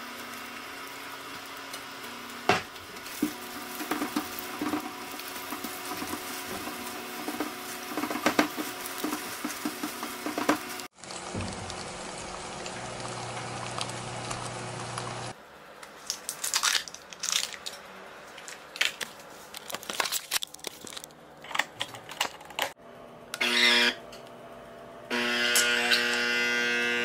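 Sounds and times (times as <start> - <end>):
food sizzling in frying pan: 0.0 - 15.4
coffee capsule wrapper crinkling: 16.0 - 17.8, 18.4 - 21.2
capsule machine pump buzzing: 22.8 - 27.0.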